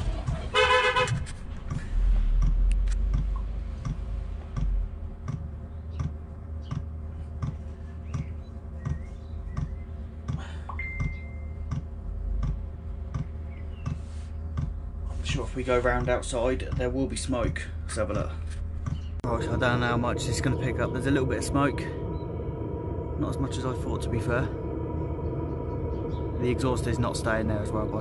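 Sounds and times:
fuel pump ticking: 0:01.2 - 0:14.8, 0:15.9 - 0:18.0
heater running hum: 0:03.2 - 0:28.0.

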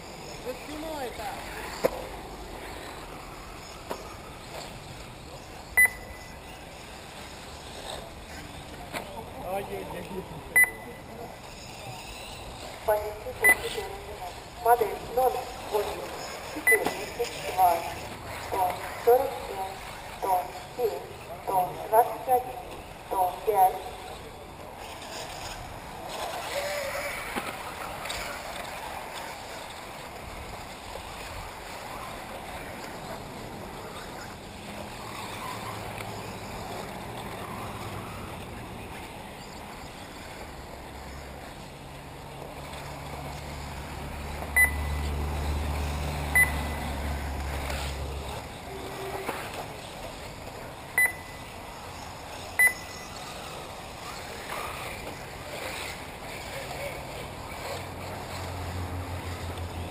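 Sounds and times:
high electronic beeps: 0:05.7 - 0:06.4, 0:10.6 - 0:11.1, 0:13.4 - 0:13.8, 0:16.6 - 0:17.1, 0:44.6 - 0:45.0, 0:46.4 - 0:46.8, 0:51.0 - 0:51.4, 0:52.6 - 0:53.1.

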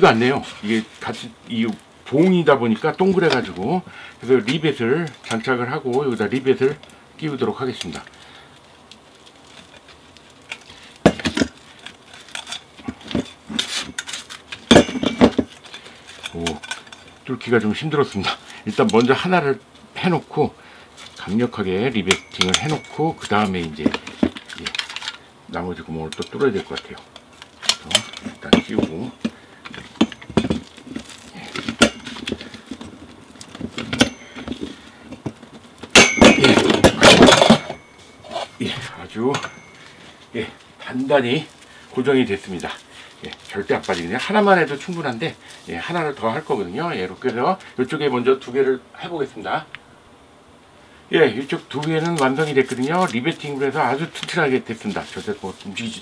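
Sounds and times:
metal clicks and clatter: 0:10.4 - 0:17.2, 0:22.0 - 0:25.2, 0:26.1 - 0:38.6.

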